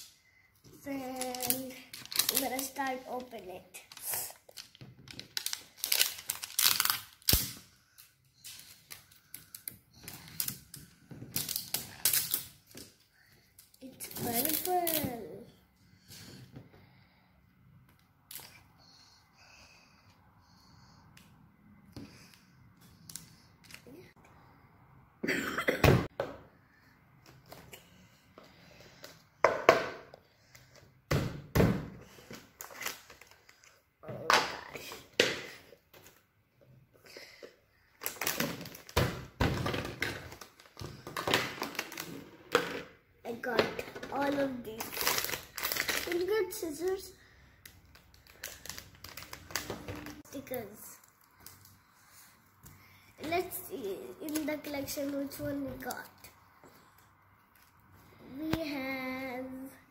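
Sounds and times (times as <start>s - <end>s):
plastic wrapping crinkling: 0.9s - 10.7s, 44.2s - 46.9s, 47.7s - 50.2s.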